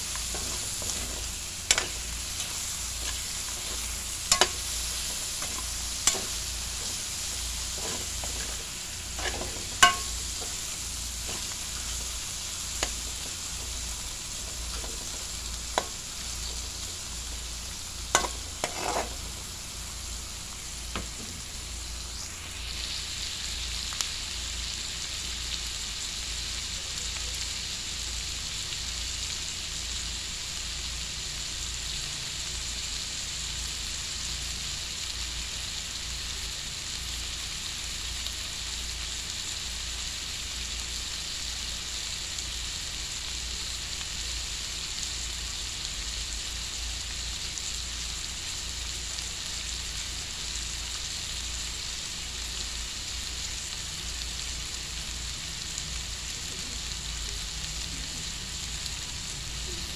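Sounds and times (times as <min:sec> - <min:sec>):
food sizzling in oil: 0:00.0 - 0:59.9
metal spatula scraping pan: 0:00.2 - 0:12.1, 0:18.2 - 0:19.3.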